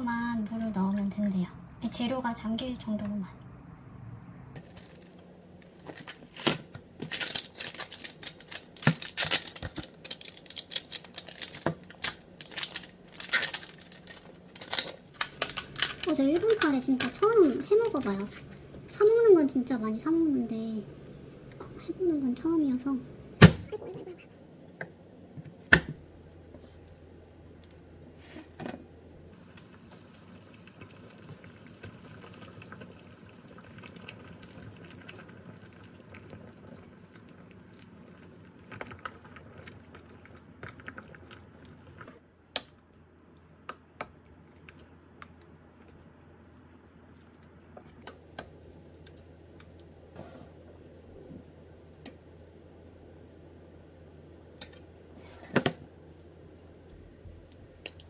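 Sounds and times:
pot simmering hiss: 0:29.3 - 0:42.2.

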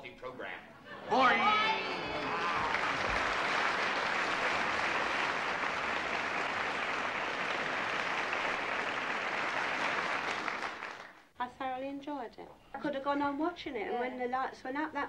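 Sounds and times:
audience applauding: 0:01.1 - 0:11.2.

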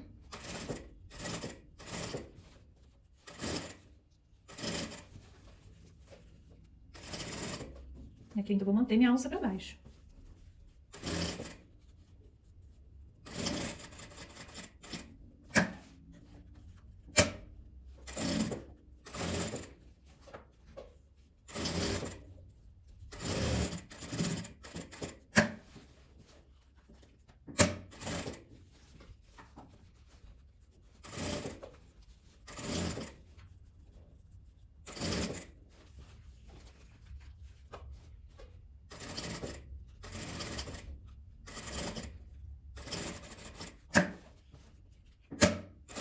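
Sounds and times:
sewing machine stitching: 0:00.0 - 0:02.5, 0:03.2 - 0:05.2, 0:06.9 - 0:07.8, 0:10.9 - 0:11.7, 0:13.2 - 0:15.9, 0:17.1 - 0:19.8, 0:21.5 - 0:22.3, 0:23.1 - 0:25.7, 0:27.5 - 0:28.5, 0:31.0 - 0:31.8, 0:32.4 - 0:33.3, 0:34.8 - 0:35.6, 0:38.9 - 0:42.2, 0:42.8 - 0:44.2, 0:45.4 - 0:46.0.

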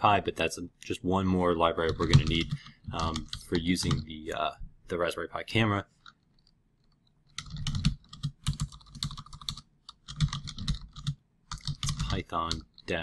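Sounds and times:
typing on computer keyboard: 0:01.9 - 0:04.0, 0:06.0 - 0:12.9.

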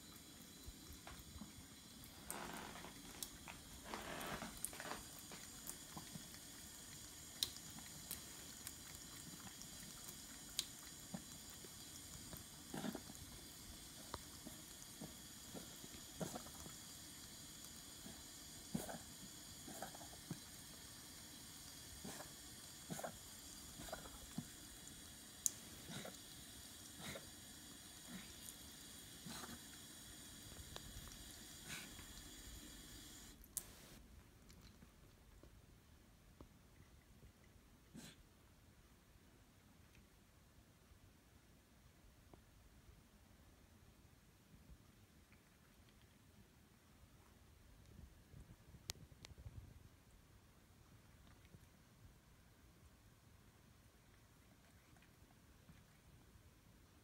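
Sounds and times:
cat lapping water: 0:00.0 - 0:35.4, 0:53.8 - 0:57.0
tap water trickling: 0:00.7 - 0:12.6
small ticks: 0:02.2 - 0:06.2, 0:07.4 - 0:13.4.

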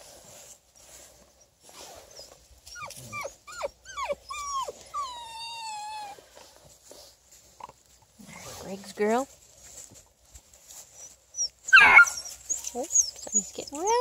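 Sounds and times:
puppies yelping and whining: 0:00.8 - 0:06.3, 0:10.7 - 0:14.0.

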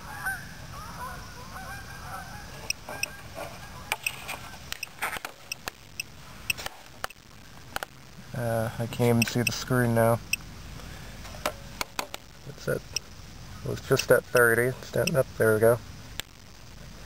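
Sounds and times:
faint geese honking: 0:00.0 - 0:06.6
geiger counter clicking: 0:14.3 - 0:15.2.

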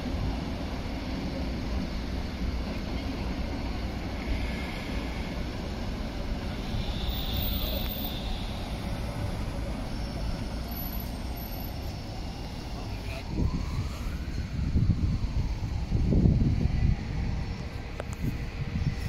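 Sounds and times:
tram moving across tracks: 0:00.0 - 0:19.0
cars driving past: 0:03.8 - 0:13.0.

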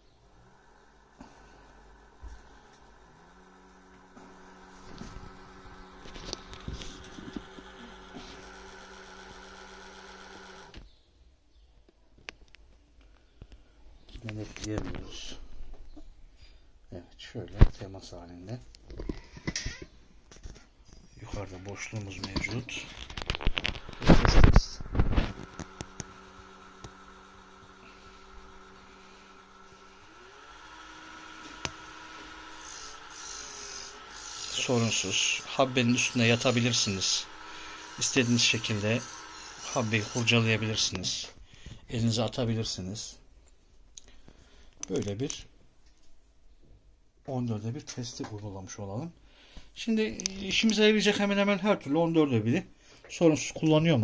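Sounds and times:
lathe motor humming: 0:00.2 - 0:10.8, 0:23.5 - 0:41.3.

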